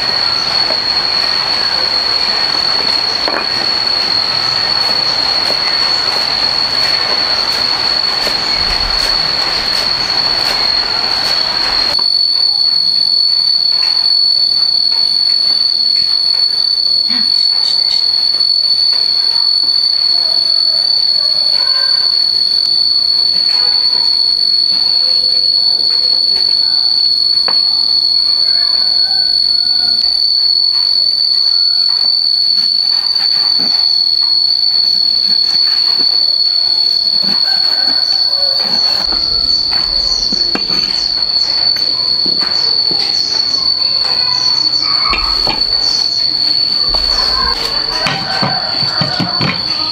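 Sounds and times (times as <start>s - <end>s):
rushing noise: 0.0s - 12.0s, 34.8s - 49.7s
insect high-pitched drone: 0.0s - 49.9s.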